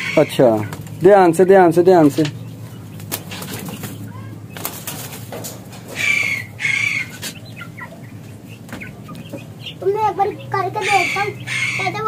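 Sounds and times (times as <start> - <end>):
chicken squawks: 0.0 - 0.8, 5.9 - 9.9, 10.5 - 12.0
pigeon wings flapping: 4.6 - 5.4.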